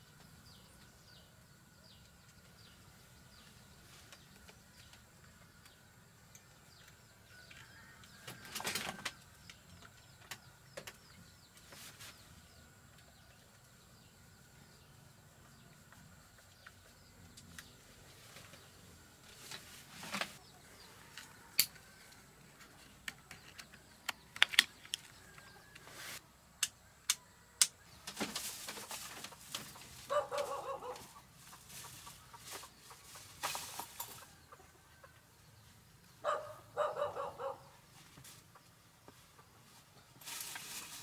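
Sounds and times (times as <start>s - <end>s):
chickens clucking: 28.2s - 40.8s.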